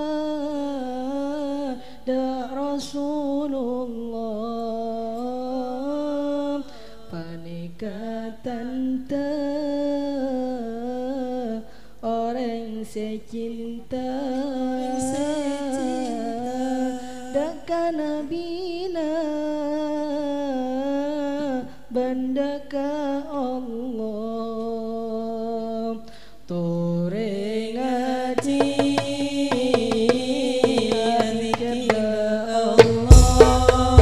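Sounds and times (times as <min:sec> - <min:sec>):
person chanting a melody: 0:14.0 - 0:17.7, 0:26.6 - 0:34.0
frame drums striking: 0:28.4 - 0:34.0.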